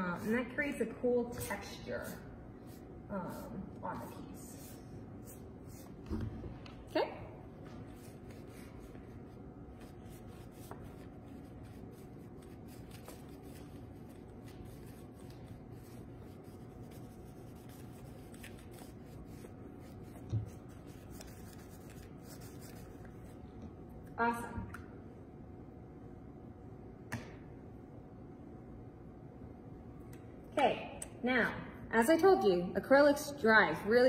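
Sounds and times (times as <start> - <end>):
dry paintbrush rubbing on canvas: 1.4 - 6.1, 7.6 - 23.4.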